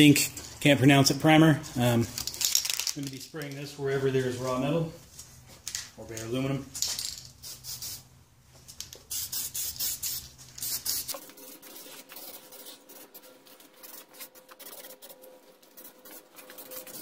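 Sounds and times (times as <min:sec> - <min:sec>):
aerosol can spraying: 0:07.4 - 0:08.0, 0:09.0 - 0:13.0.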